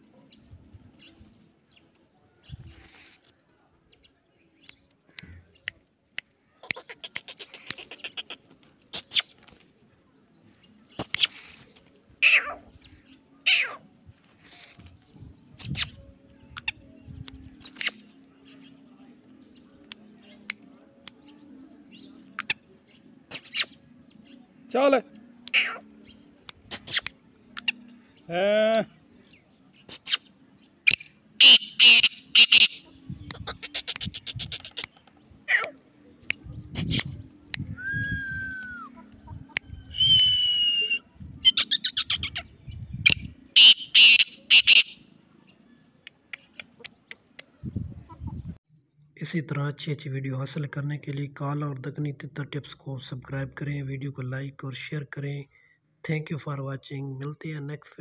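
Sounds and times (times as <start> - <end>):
francolin calling: 30.9 - 32.9, 43.6 - 45.0.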